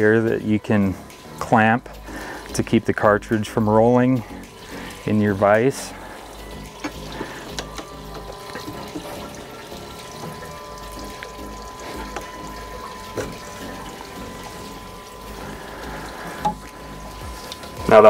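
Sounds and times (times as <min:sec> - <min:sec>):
shop hiss and hum: 0:10.1 - 0:18.0.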